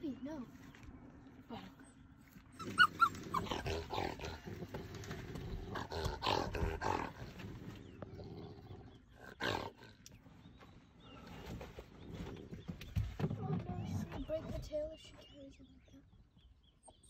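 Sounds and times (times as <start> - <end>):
dog yelping: 2.5 - 4.0
civet growling and spitting: 2.6 - 10.2.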